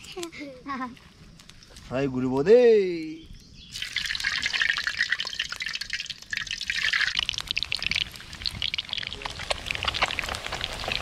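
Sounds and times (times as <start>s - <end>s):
hot oil sizzling in a wok: 3.7s - 11.0s.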